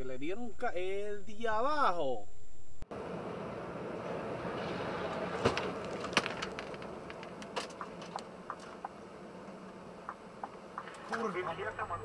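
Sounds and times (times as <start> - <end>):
road and engine noise inside vehicle: 2.8 - 12.0
sharp clicks and knocks: 5.4 - 9.0.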